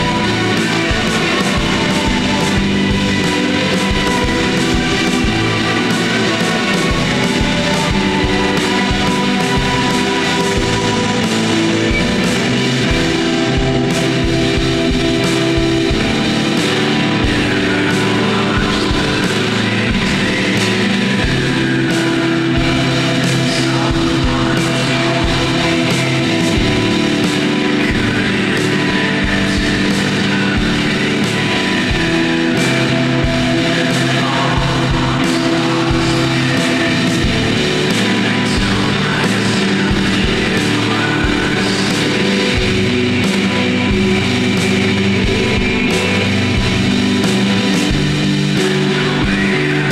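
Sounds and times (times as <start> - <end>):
drum hits: 0.0 - 21.8, 22.6 - 49.9
fuzz-distorted guitars: 0.0 - 49.9.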